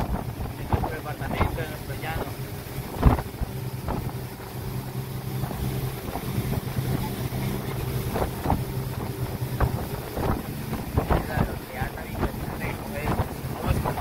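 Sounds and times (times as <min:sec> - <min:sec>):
motorboat engine humming: 0:00.0 - 0:14.0
wind rushing over microphone: 0:00.0 - 0:14.0.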